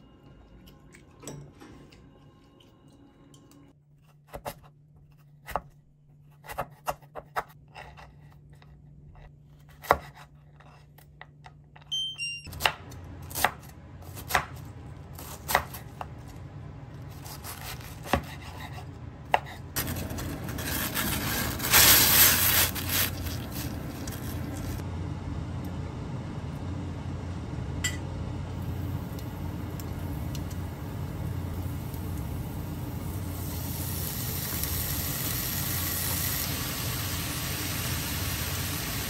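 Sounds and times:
knife chopping on cutting board: 9.7 - 10.7, 17.2 - 19.6.

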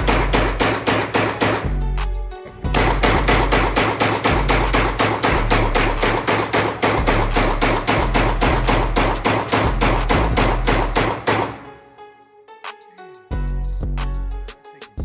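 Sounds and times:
rapid pistol gunshots: 0.0 - 1.7, 2.7 - 11.7.

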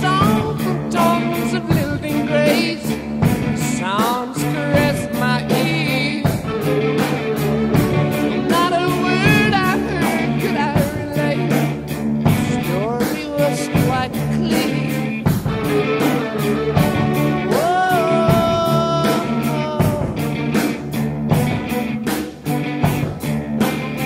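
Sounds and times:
rock song with singing: 0.0 - 24.0
steady drum beat: 0.0 - 24.0.

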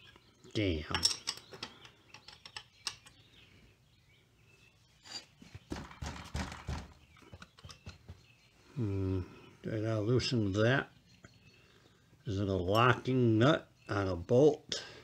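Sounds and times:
rattling knocks: 5.7 - 8.3.

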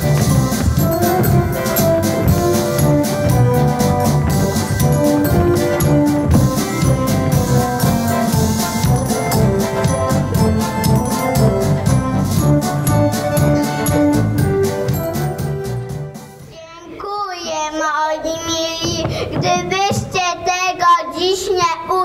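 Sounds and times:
instrumental dance music: 0.0 - 16.5.

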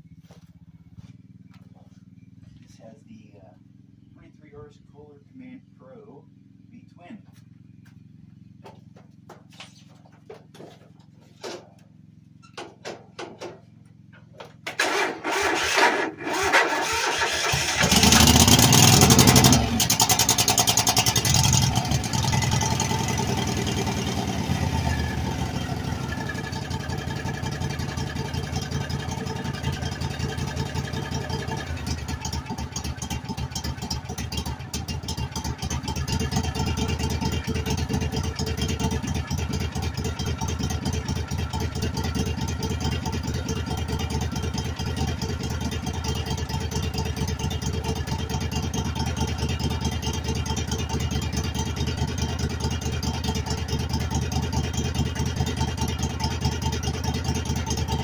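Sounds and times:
lawn tractor engine idling: 0.0 - 58.0
starter cranking: 14.6 - 21.5.

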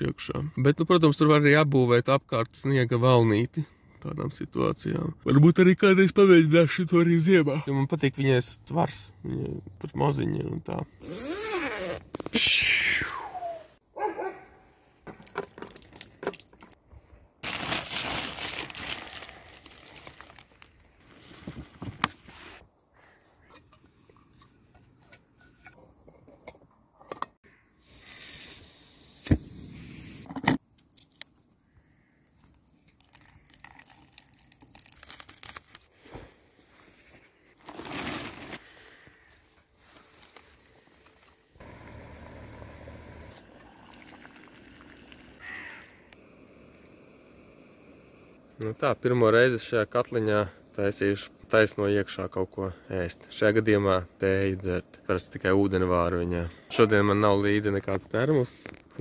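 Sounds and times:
packaging crinkling and tearing: 17.4 - 21.0, 32.8 - 35.9, 37.6 - 38.6.

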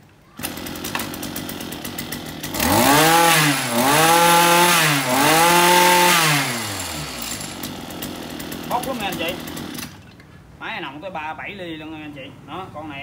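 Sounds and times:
brush cutter engine revving: 0.4 - 10.0.

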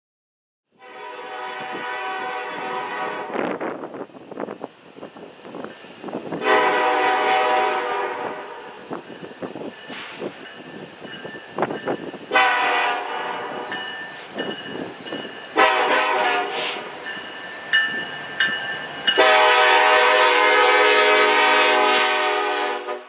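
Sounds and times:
locomotive air horn blasts: 0.8 - 3.6, 6.4 - 8.8, 12.3 - 13.7, 15.6 - 17.0, 19.2 - 23.0.

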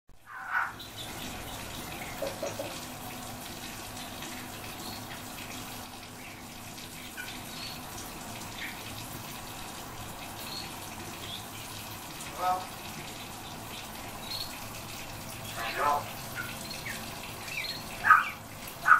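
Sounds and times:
songbirds chirping: 15.5 - 18.9.

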